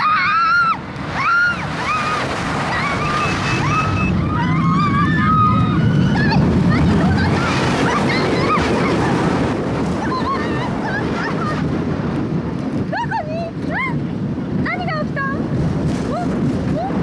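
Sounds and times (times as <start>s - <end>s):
riders crying and yelping: 0.0s - 11.7s
wind rushing over microphone: 0.0s - 17.0s.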